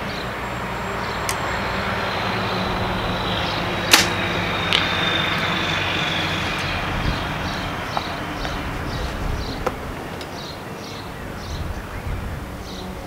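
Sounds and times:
low vehicle hum: 0.0s - 13.0s
arrow striking target: 3.8s - 4.9s
bow string snap: 3.9s - 4.9s.

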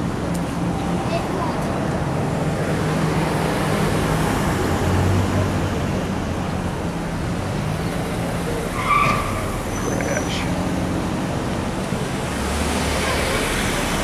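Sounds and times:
street rumble: 0.0s - 14.0s.

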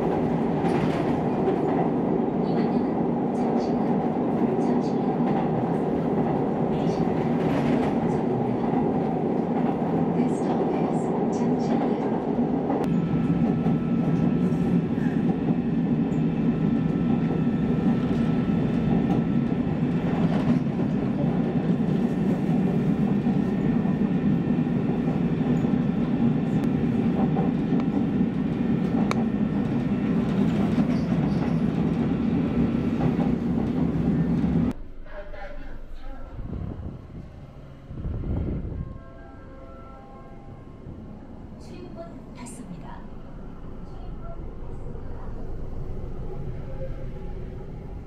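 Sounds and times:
train running rumble: 0.0s - 39.0s.

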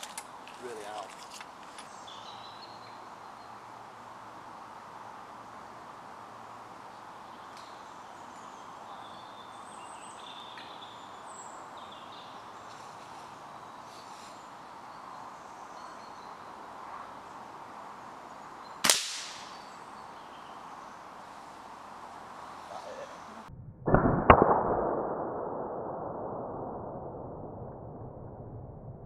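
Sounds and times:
air rifle shot: 18.8s - 19.6s, 23.9s - 26.6s.

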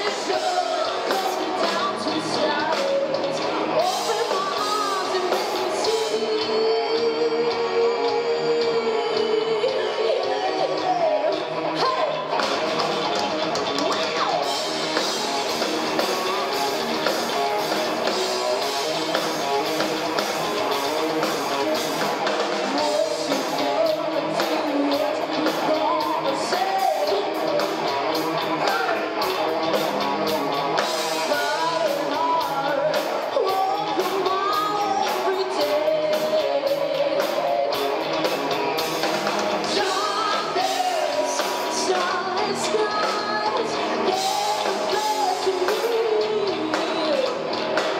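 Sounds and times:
woman singing lead vocal: 0.0s - 12.4s, 22.6s - 29.2s, 31.0s - 38.1s, 39.6s - 47.9s
live rock band playing: 0.0s - 47.9s.

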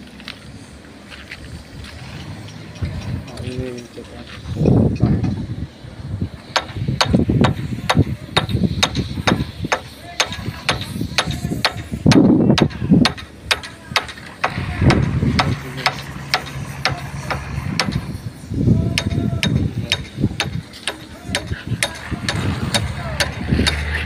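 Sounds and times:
low rumbling: 0.0s - 24.0s
hammer clanking on steel: 6.5s - 18.1s, 18.9s - 24.0s.

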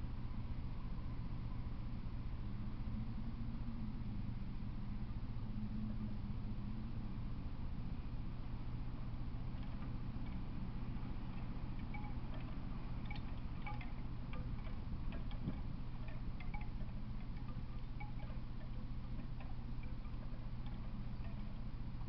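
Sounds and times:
low hum: 0.0s - 22.0s
high tinkling blips: 11.7s - 21.8s.

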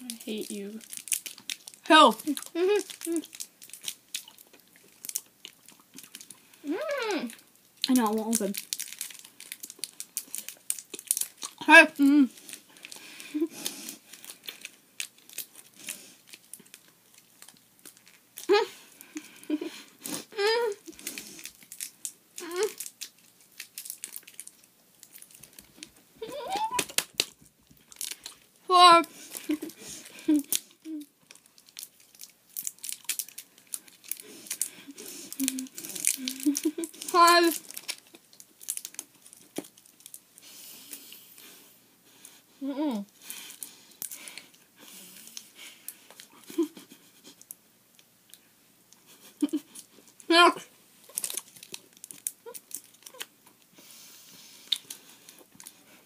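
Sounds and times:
plastic wrappers crinkling: 0.0s - 6.7s, 7.4s - 20.0s, 20.7s - 40.3s, 43.1s - 47.6s, 51.0s - 53.7s, 54.4s - 56.0s
wordless voice sounds: 28.7s - 29.1s, 37.1s - 37.6s
mouth clicks and breaths: 53.8s - 56.0s.

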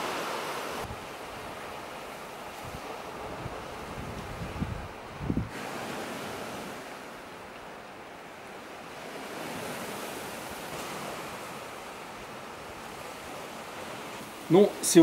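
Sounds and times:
wind buffeting microphone: 0.0s - 7.2s
sea surf on rocky shore: 0.0s - 15.0s.

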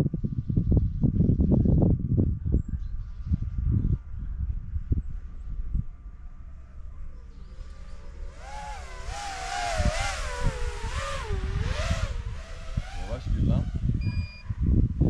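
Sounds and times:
wind rumble on microphone: 0.0s - 15.0s
drone motors whining: 7.2s - 14.4s.

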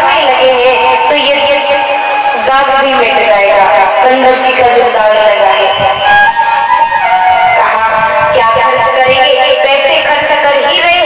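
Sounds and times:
woman singing into a microphone: 0.0s - 11.0s
musical accompaniment: 5.2s - 8.6s.

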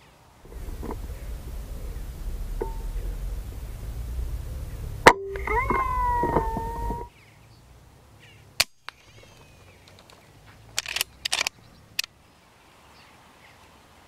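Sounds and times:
sharp crack: 0.5s - 7.1s.

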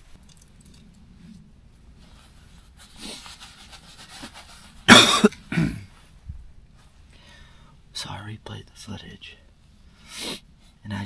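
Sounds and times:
man coughing: 4.9s - 6.0s.

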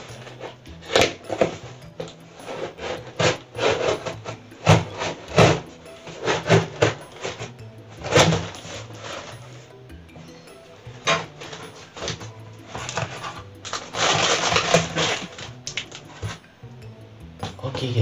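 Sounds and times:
packing tape ripping: 11.1s - 16.3s.

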